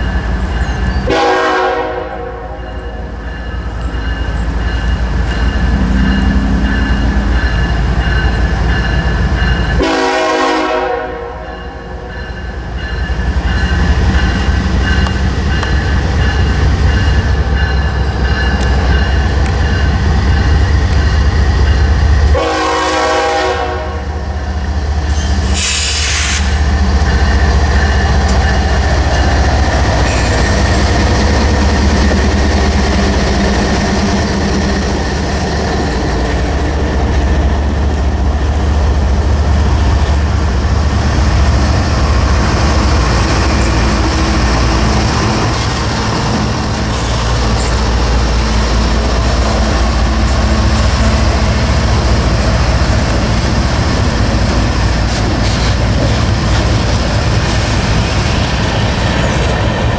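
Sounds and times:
locomotive engines rumbling: 0.0 - 59.9
locomotive air horn blasts: 1.1 - 2.6, 9.8 - 11.6, 22.3 - 24.2, 25.6 - 26.6
crossing signal bell ringing: 2.5 - 10.0, 11.4 - 22.4, 26.8 - 30.1.

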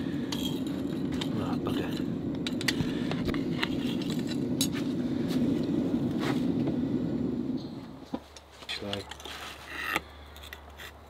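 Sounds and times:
gas forge burner rushing: 0.0 - 8.4.

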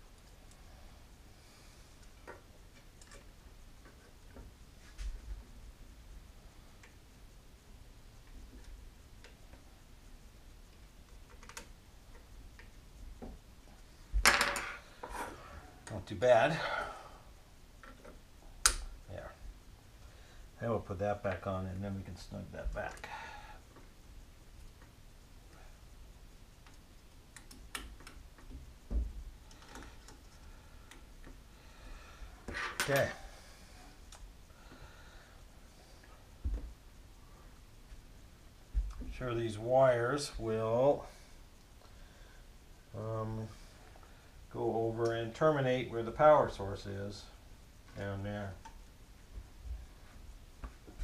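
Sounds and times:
light clicks of small parts: 10.7 - 13.9, 26.5 - 28.6.

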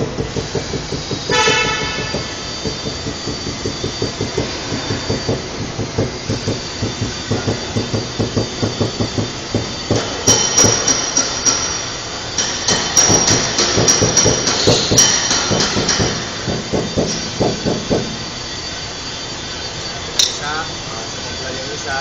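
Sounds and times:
rapid tapping on metal panel: 0.0 - 11.6.

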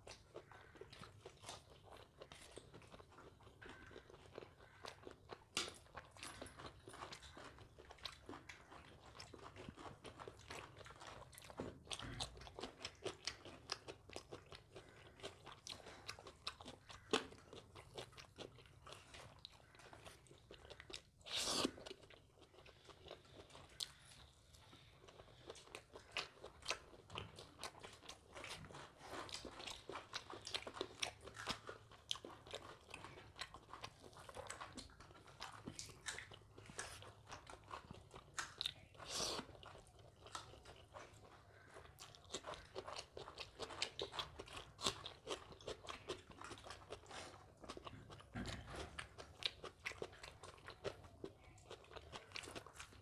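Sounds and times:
person chewing and biting food: 0.0 - 53.0.

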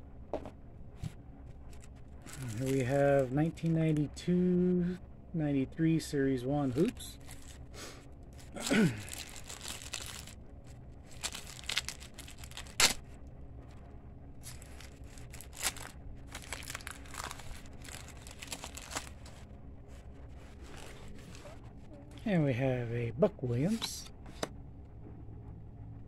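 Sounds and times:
card pack wrapper crinkling and tearing: 1.7 - 3.3, 6.7 - 7.7, 8.4 - 13.1, 14.4 - 19.5, 20.4 - 21.6.

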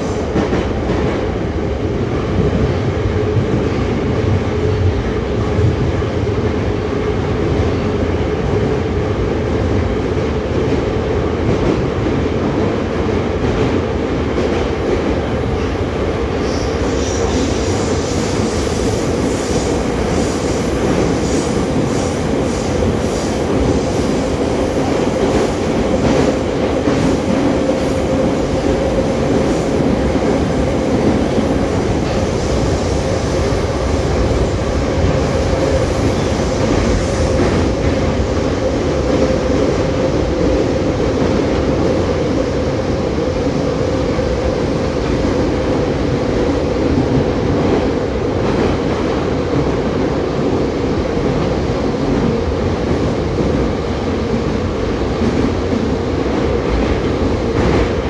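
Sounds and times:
train wheels rumbling in tunnel: 0.0 - 58.0.

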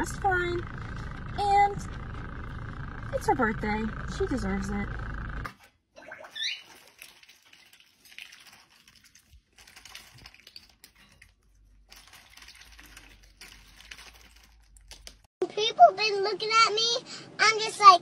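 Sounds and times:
duck bill pecking and dabbling: 6.0 - 15.2.

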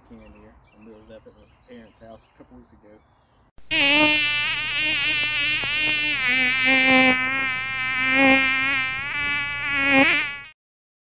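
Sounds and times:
chainsaw cutting log: 4.4 - 10.3.

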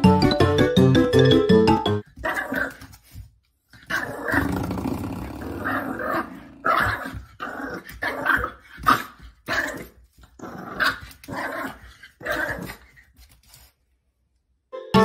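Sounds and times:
puppy growling barks: 2.2 - 2.8, 3.9 - 12.8.

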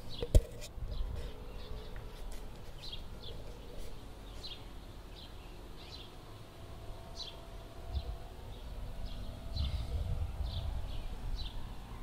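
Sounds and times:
bird chirping: 0.0 - 6.2, 7.1 - 12.0
faint low rumble: 6.8 - 12.0.

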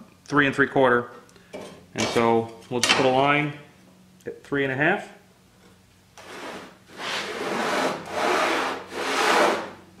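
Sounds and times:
pencil scratching along a square: 6.2 - 9.6.

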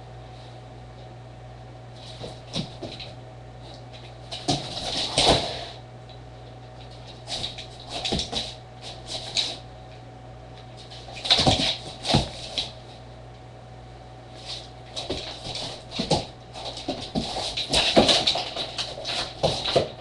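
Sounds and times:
dog claws scrabbling on wooden floor: 2.0 - 5.6, 6.8 - 9.6, 10.6 - 12.8, 14.4 - 20.0.

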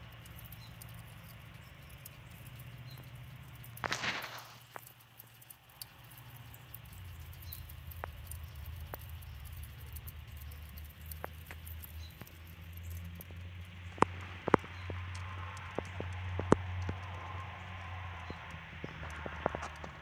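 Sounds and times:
fire crackling and popping: 0.0 - 20.0
low steady rumble: 0.0 - 20.0.

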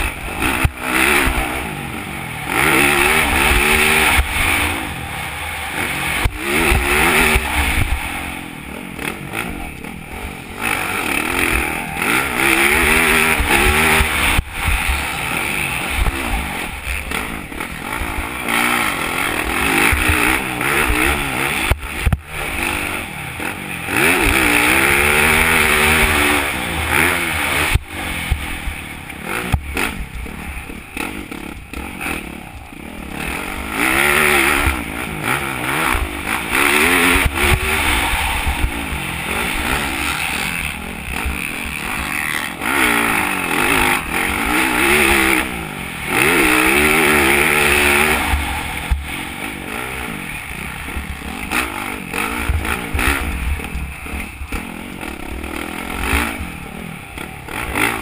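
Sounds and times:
motocross bike engine revving: 0.0 - 58.0.

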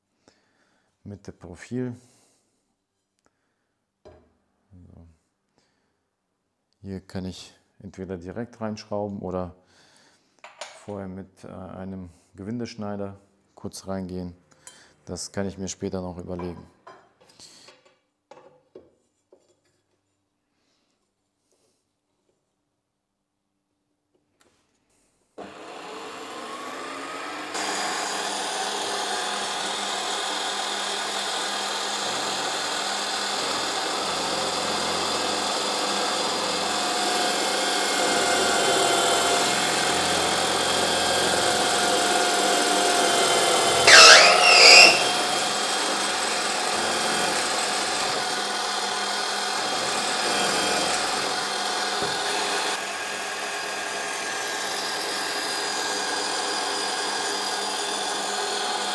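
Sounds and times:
drill bit cutting metal: 25.4 - 58.9
drill press running: 25.4 - 58.9
loud screeches: 43.7 - 45.3.

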